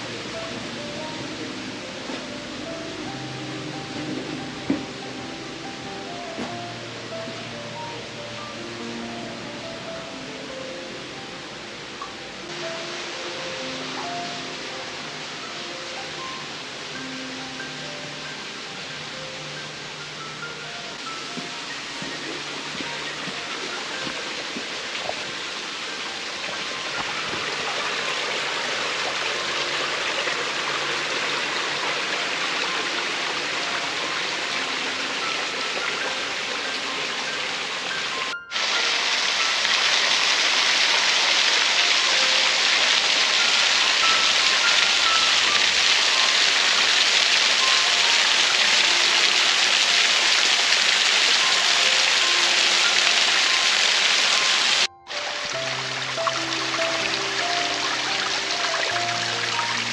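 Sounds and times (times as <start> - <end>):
soft steady hiss: 0.0 - 59.9
small waterfall splashing on rocks: 21.1 - 59.9.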